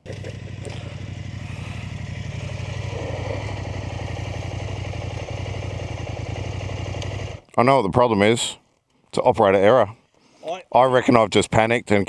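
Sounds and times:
motorcycle engine idling: 0:00.0 - 0:07.5.

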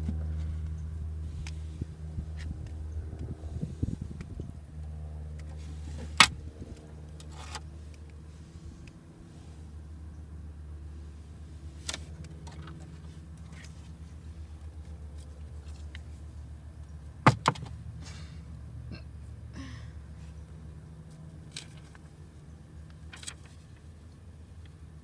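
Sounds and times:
steady low hum: 0:00.0 - 0:25.0
taps and knocks on cardboard: 0:17.3 - 0:17.7.

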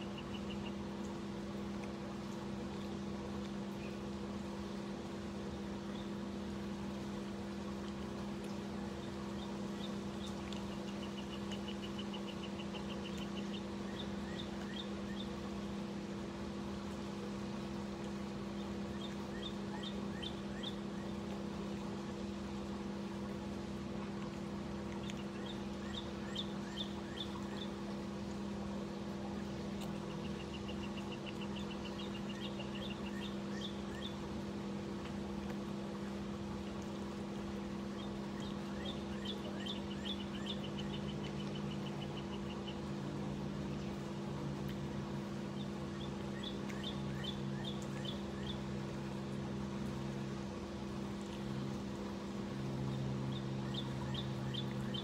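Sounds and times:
songbird chirping and trilling: 0:00.0 - 0:00.8, 0:09.0 - 0:15.4, 0:18.6 - 0:21.2, 0:25.0 - 0:27.8, 0:29.9 - 0:34.2, 0:37.9 - 0:43.0, 0:45.5 - 0:48.6, 0:52.9 - 0:55.0
low mechanical hum: 0:00.0 - 0:55.0.

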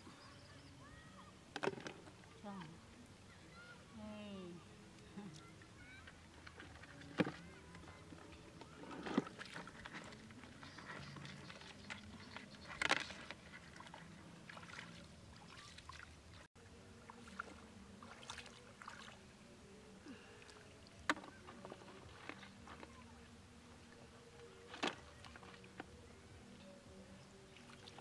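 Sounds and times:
feet wading in shallow water: 0:08.6 - 0:19.3.

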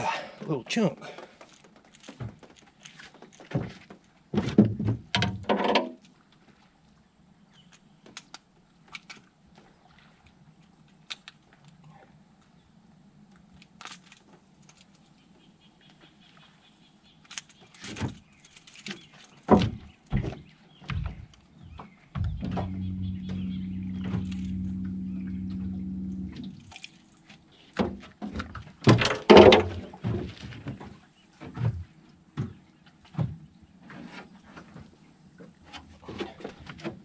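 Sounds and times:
knocks on aluminium boat: 0:22.1 - 0:25.6
faint steady hum: 0:22.1 - 0:27.4.

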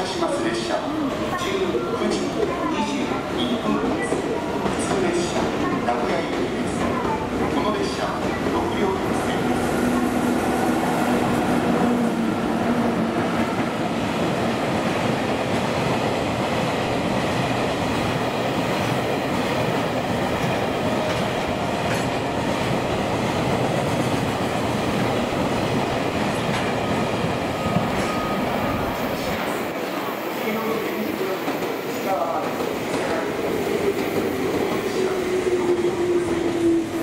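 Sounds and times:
train wheels rumbling on rails: 0:00.0 - 0:37.0
electric locomotive hum: 0:04.0 - 0:31.4.

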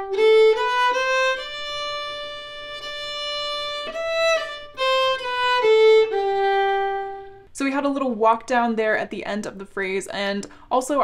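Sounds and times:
solo fiddle melody: 0:00.0 - 0:07.6.

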